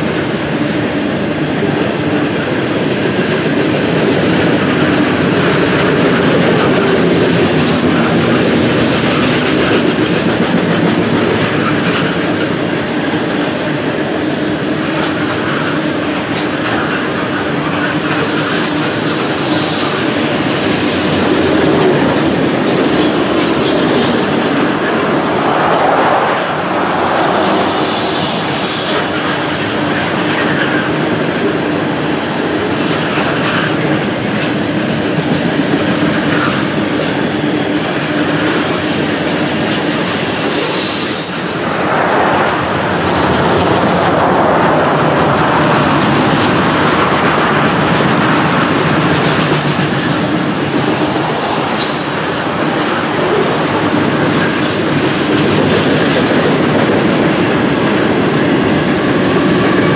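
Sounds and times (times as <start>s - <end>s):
high-pitched wheel squeal: 39.0s - 43.0s.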